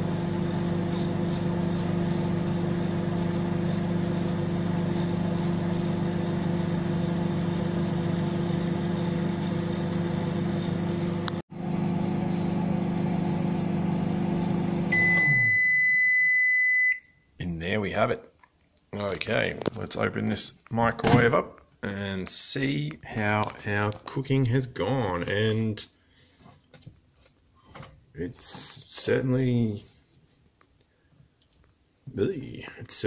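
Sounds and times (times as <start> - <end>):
turntable rumble: 0.0 - 15.0
microwave humming: 0.0 - 17.3
long high-pitched beep: 14.9 - 17.2.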